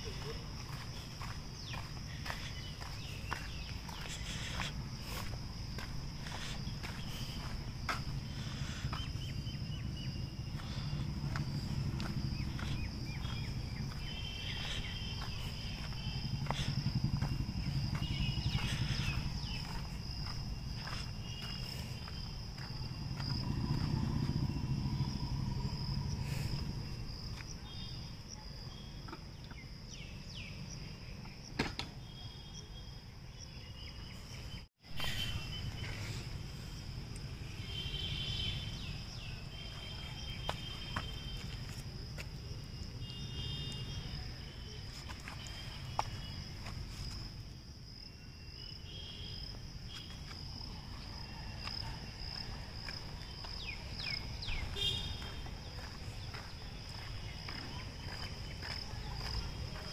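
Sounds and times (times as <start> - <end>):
low outdoor rumble: 0.0 - 27.5.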